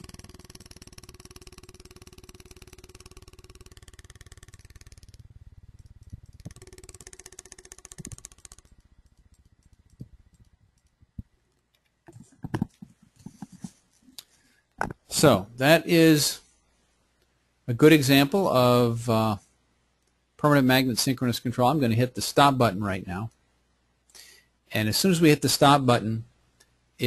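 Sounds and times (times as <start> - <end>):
faint motor hum: 0.0 - 13.8
scattered clicks: 0.0 - 15.0
tape flicking against microphone: 0.0 - 15.1.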